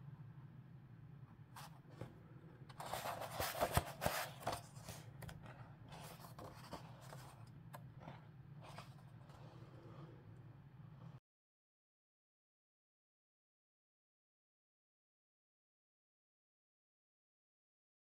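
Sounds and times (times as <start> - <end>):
book pages rustling: 2.7 - 10.1.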